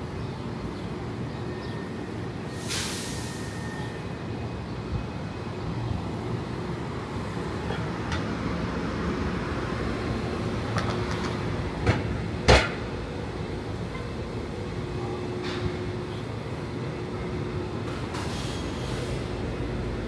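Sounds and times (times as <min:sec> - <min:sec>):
hum of cars: 0:00.0 - 0:20.0.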